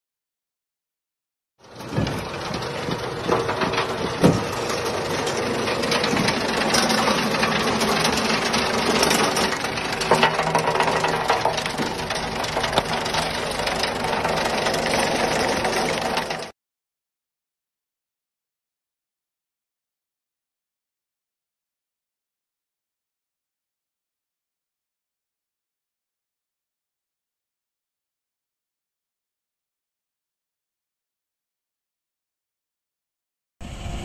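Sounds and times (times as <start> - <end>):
vibrating screen mechanical rattle: 1.6 - 16.5.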